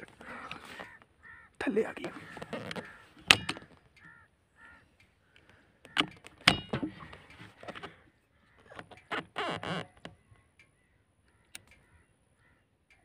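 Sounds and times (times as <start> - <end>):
birds giving harsh calls: 0.0 - 12.7
sharp clicks or knocks: 2.3 - 4.1, 5.8 - 8.0.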